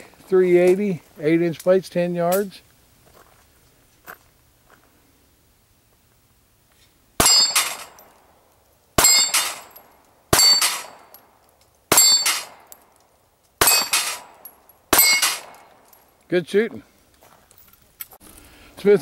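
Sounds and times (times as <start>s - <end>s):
pistol shots: 7.2s - 8.1s, 9.0s - 11.2s, 11.9s - 12.8s, 13.6s - 15.8s
steel plate clanging: 7.2s - 8.2s, 9.0s - 11.2s, 11.9s - 12.8s, 13.6s - 16.0s.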